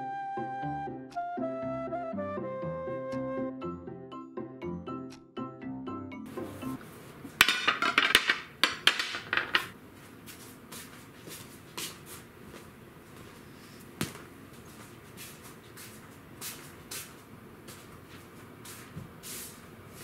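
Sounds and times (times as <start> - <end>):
dishes clinking on glass table: 7.4 - 9.8.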